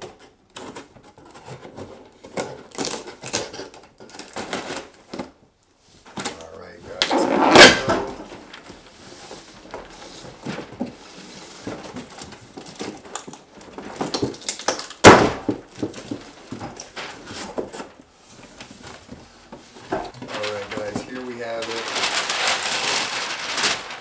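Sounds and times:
cardboard flaps flexing and scraping: 6.9 - 24.0
knocks on cardboard box: 15.0 - 16.8
loud thump: 15.1 - 15.6.

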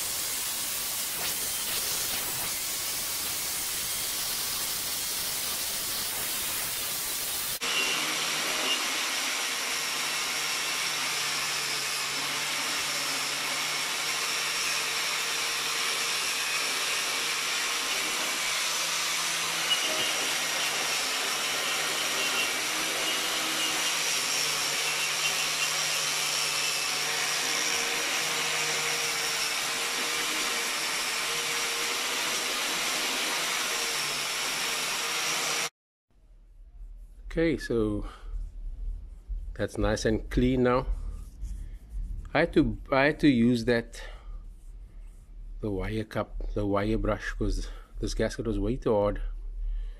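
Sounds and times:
angle grinder with wire brush: 0.0 - 35.7.

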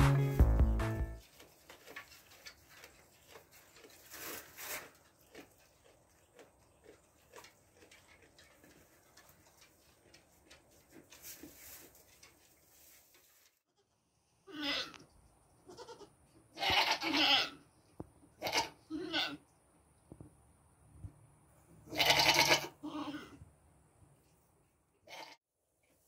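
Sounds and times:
intro music: 0.0 - 1.2
goat rustling in straw: 1.2 - 5.1, 10.8 - 13.6.

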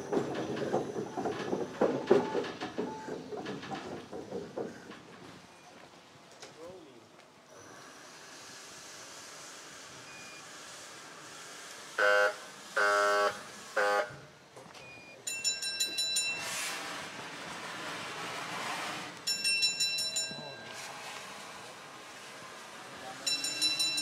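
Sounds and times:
steam hiss: 7.5 - 14.2
steam locomotive whistle blasts: 11.8 - 14.3
bell ringing: 15.3 - 16.8, 19.3 - 21.5, 23.2 - 24.0.

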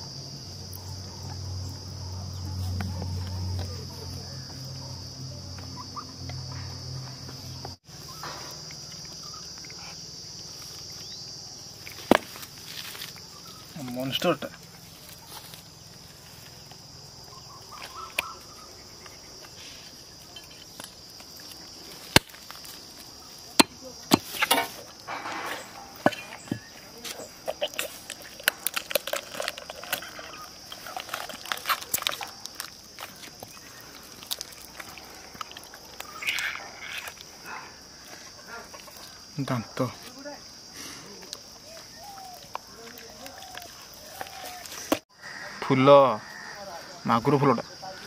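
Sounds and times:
insects droning: 0.0 - 48.0
wet squelching of fish innards: 27.5 - 36.4.

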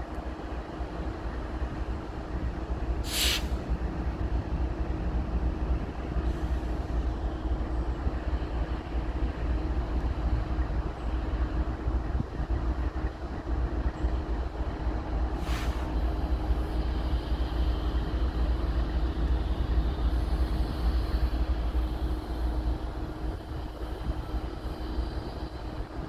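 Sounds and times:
diesel locomotive rumbling: 0.0 - 26.0
brief hiss: 3.0 - 3.6, 15.4 - 16.0.

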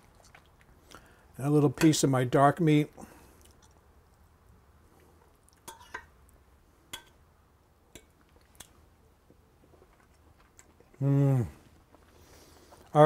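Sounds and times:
person chewing: 0.0 - 1.2, 3.2 - 4.2, 8.0 - 12.9.

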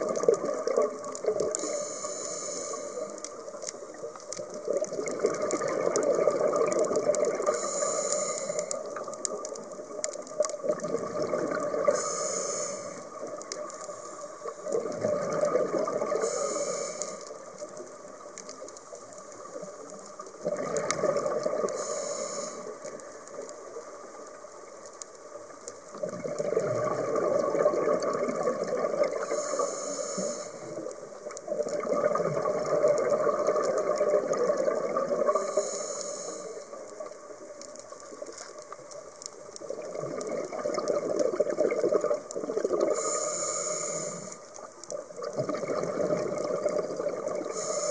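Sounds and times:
regulator inhale hiss: 1.4 - 3.9, 7.4 - 9.1, 11.8 - 14.9, 16.1 - 17.8, 21.6 - 23.7, 29.0 - 31.1, 35.2 - 37.2, 42.8 - 44.7, 47.4 - 47.9.

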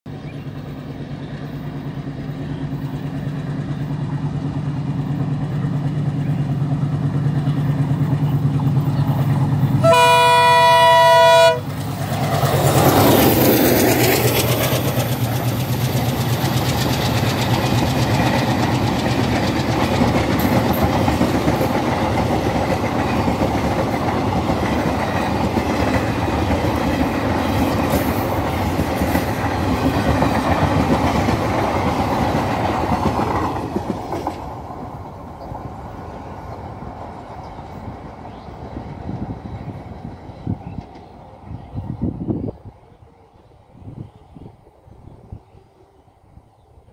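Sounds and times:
train wheels clickety-clack: 0.1 - 10.2, 11.1 - 41.3
diesel locomotive chugging: 0.1 - 45.4
train horn blast: 9.8 - 11.8.

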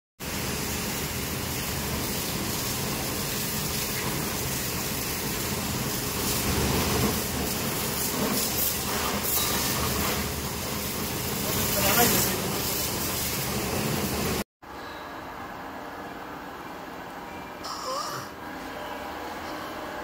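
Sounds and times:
water gushing: 0.2 - 14.4.

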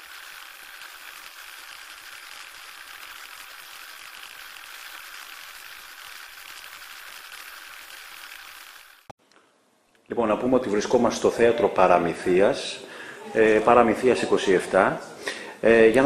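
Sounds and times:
static hiss with crackle: 0.0 - 9.1.

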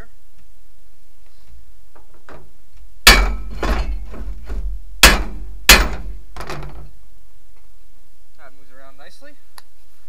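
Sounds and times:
hammer striking metal: 3.1 - 6.7.

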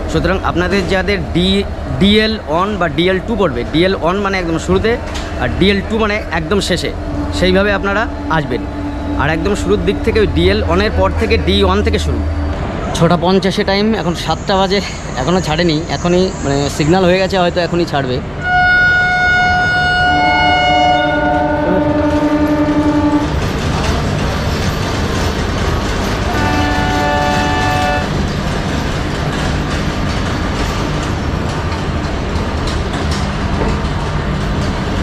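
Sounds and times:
train rumble and clatter: 0.0 - 35.0
train horn blasts: 18.4 - 23.4, 26.3 - 28.2.

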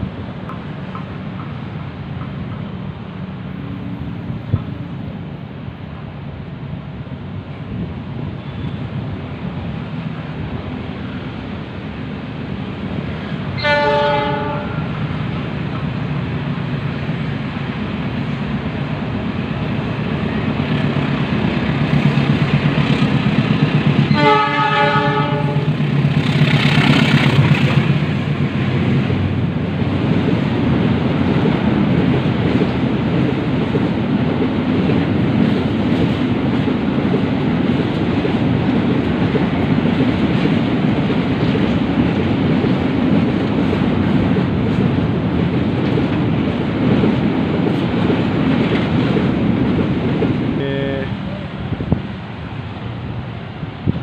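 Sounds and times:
diesel locomotive engine rumble: 0.0 - 54.0
locomotive horn: 13.6 - 15.0, 24.1 - 25.8.

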